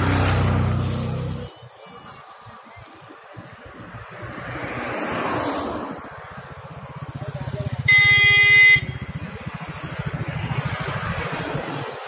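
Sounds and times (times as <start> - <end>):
engine rumbling: 0.0 - 12.0
passing traffic: 0.0 - 12.0
vehicle horn blast: 7.8 - 9.1.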